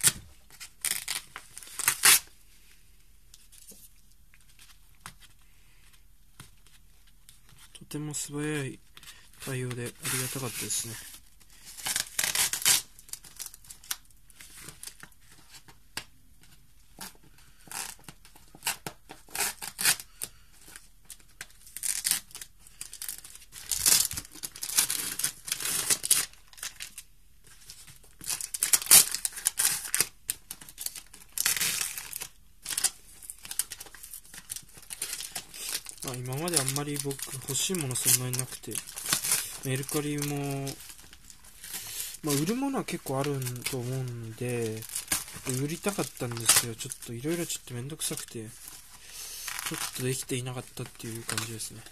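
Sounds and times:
packing tape ripping: 0.0s - 2.3s, 11.7s - 14.0s, 21.6s - 27.0s, 28.2s - 44.0s, 49.4s - 50.1s
paper crinkling: 20.7s - 51.9s.

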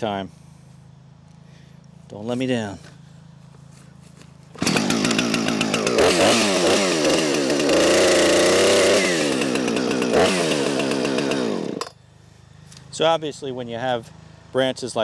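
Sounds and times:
chainsaw revving: 4.5s - 11.9s.

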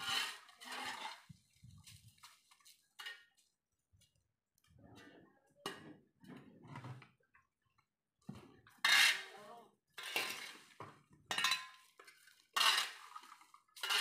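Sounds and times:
metal shovel scraping on concrete: 0.0s - 1.4s, 8.7s - 14.0s.

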